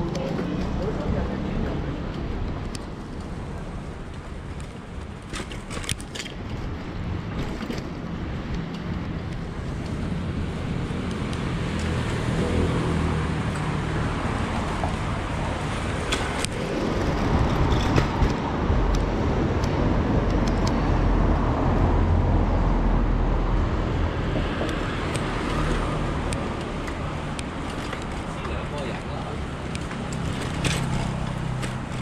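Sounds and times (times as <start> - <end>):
road traffic going by: 0.0 - 32.0
wind rumble on microphone: 0.0 - 32.0.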